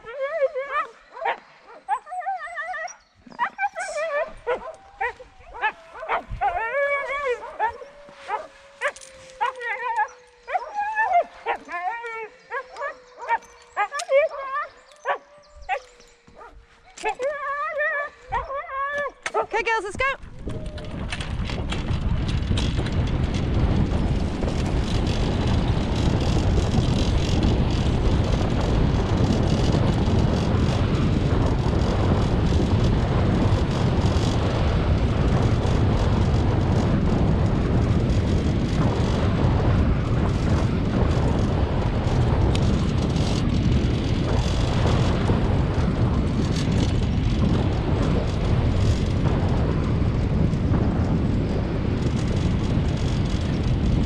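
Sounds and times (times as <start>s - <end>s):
wind buffeting microphone: 0.0s - 54.0s
wheels rolling over gravel: 3.3s - 19.4s, 20.2s - 54.0s.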